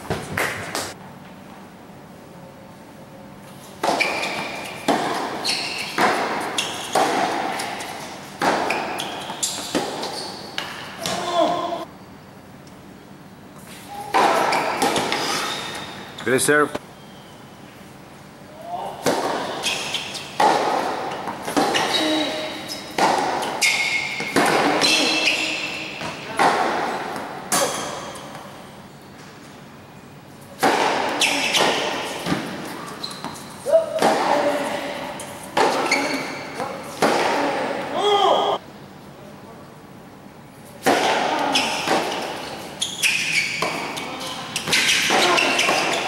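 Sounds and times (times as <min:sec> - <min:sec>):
ball bouncing on hard court: 0:00.0 - 0:01.0, 0:03.8 - 0:11.8, 0:14.1 - 0:15.8, 0:19.0 - 0:28.5, 0:30.6 - 0:37.7, 0:40.8 - 0:46.0
tennis ball struck by racquets: 0:03.8 - 0:11.7, 0:14.1 - 0:15.3, 0:19.0 - 0:28.4, 0:30.6 - 0:34.8, 0:35.5 - 0:37.7, 0:40.8 - 0:46.0.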